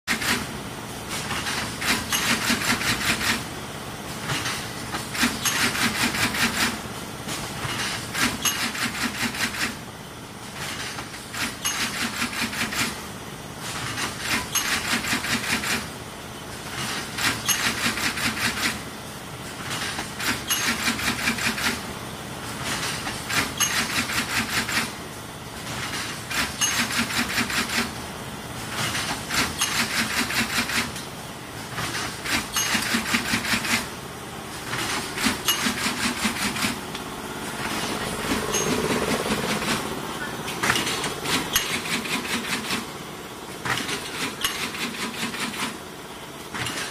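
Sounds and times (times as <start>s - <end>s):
stitching machine clattering: 0.1s - 0.5s, 1.1s - 3.5s, 4.2s - 9.8s, 10.6s - 13.0s, 13.6s - 15.9s, 16.7s - 18.8s, 19.6s - 21.9s, 22.6s - 25.0s, 25.6s - 28.0s, 28.7s - 31.0s, 31.6s - 33.9s, 34.6s - 36.8s, 37.5s - 43.0s, 43.6s - 45.8s, 46.5s - 46.9s
steady machine hum: 0.1s - 46.9s.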